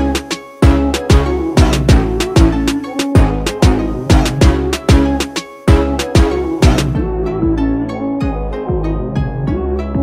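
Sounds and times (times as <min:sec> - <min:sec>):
dance music with kick drum: 0:00.0 - 0:08.4.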